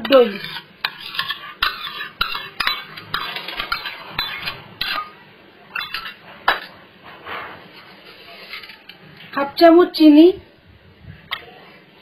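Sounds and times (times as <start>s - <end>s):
metal spoon scraping metal bowl: 0.0s - 6.2s, 7.4s - 9.0s.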